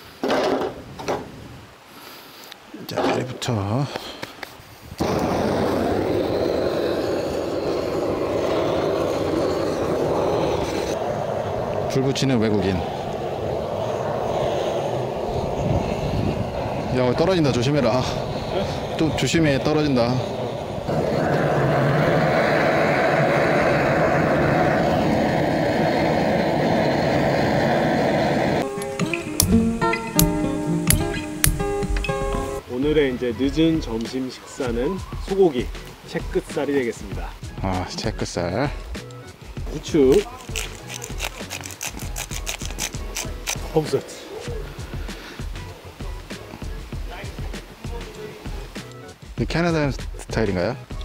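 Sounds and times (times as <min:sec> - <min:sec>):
gas torch burner rushing: 0:05.0 - 0:31.8
gas torch igniter clicks: 0:28.8 - 0:31.6.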